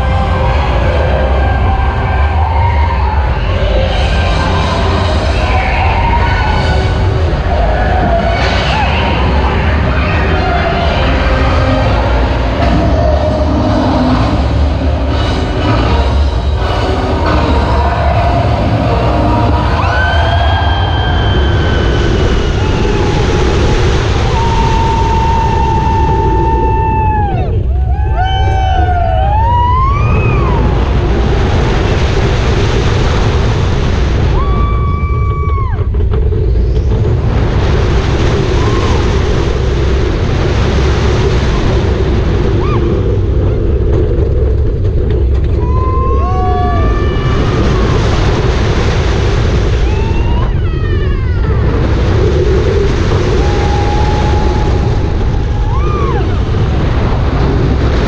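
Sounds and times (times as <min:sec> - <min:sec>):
riders screaming and whooping: 0:00.0 - 0:32.5, 0:34.2 - 0:58.0
roller coaster rumble on track: 0:00.0 - 0:58.0
wind rushing over microphone: 0:00.0 - 0:58.0.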